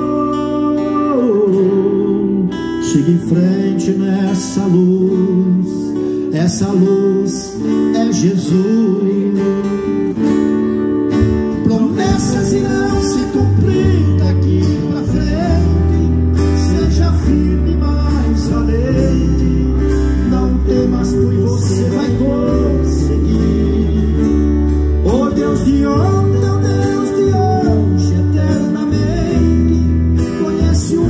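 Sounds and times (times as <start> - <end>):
acoustic guitars strummed: 0.0 - 31.0
electric bass line: 10.4 - 31.0.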